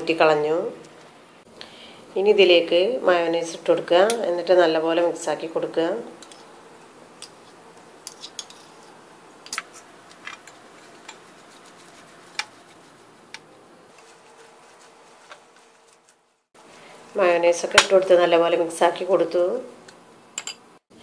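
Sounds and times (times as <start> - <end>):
cutlery clinking on ceramic bowls: 20.4 - 20.6.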